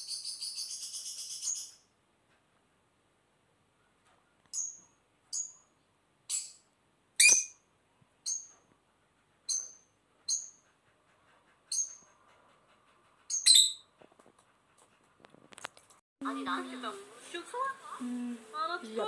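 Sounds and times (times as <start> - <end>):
bird chirping: 0.0 - 1.9, 3.8 - 8.7, 9.4 - 10.8, 11.6 - 12.3, 13.3 - 13.9.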